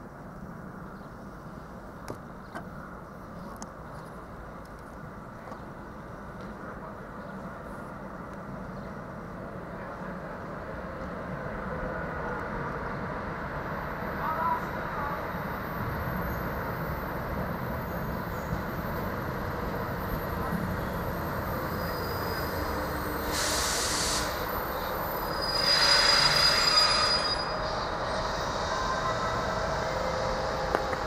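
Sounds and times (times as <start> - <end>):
train rumbling: 4.2 - 31.0
train brakes squealing: 13.4 - 31.0
short high hiss: 23.3 - 24.3.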